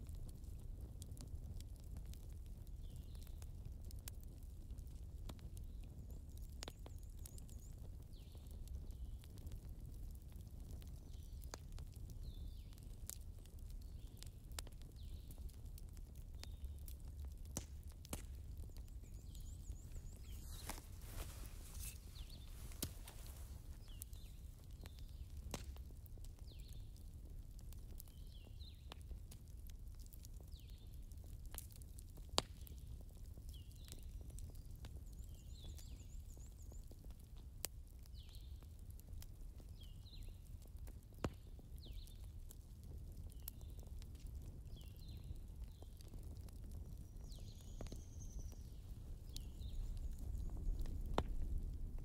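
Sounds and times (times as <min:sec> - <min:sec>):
log fire crackling: 0:00.0 - 0:52.0.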